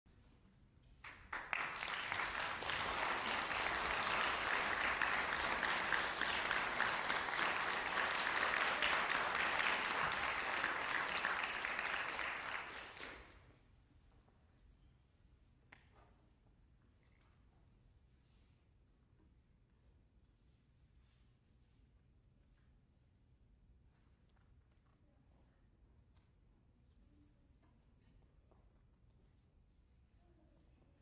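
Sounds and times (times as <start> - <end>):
audience applauding: 1.0 - 13.4.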